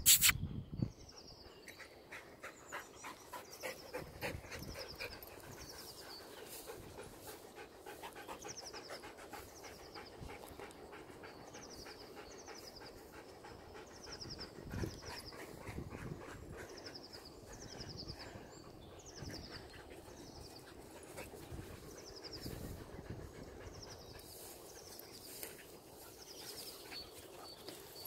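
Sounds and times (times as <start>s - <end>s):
dog panting: 1.6s - 28.0s.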